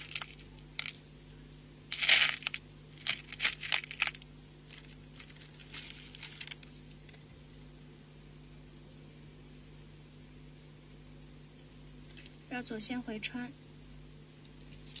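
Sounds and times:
small beads clicking and rattling: 0.0s - 1.0s, 1.9s - 6.8s.

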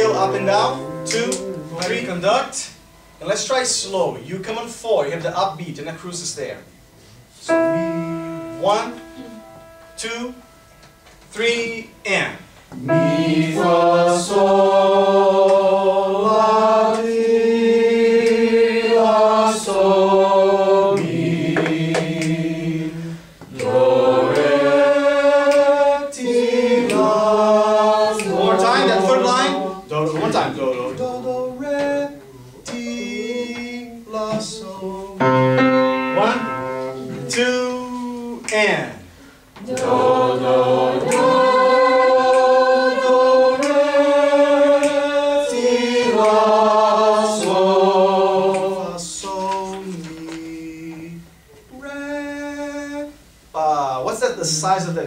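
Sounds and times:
students singing scale: 0.0s - 3.0s, 7.5s - 38.6s, 39.6s - 53.1s
short breath: 39.1s - 39.5s.

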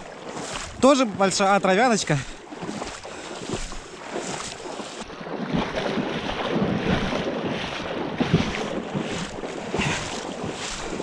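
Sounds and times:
water sloshing: 0.0s - 11.0s
wind buffeting microphone: 2.5s - 11.0s.

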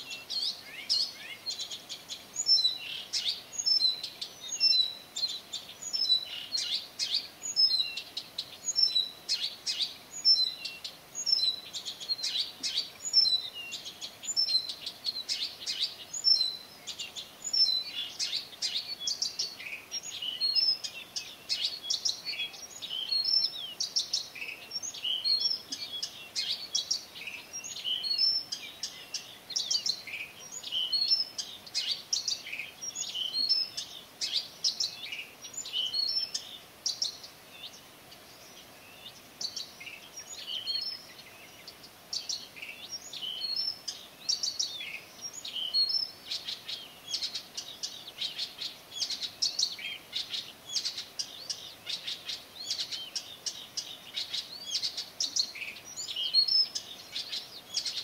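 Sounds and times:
birds chirping and whistling: 0.0s - 37.8s, 38.4s - 58.0s.

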